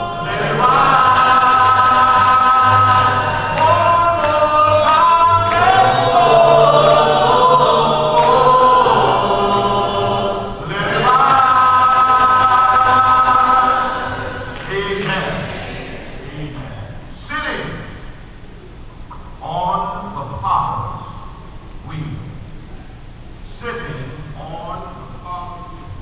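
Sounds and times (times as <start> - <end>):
unaccompanied gospel singing: 0.0 - 18.4.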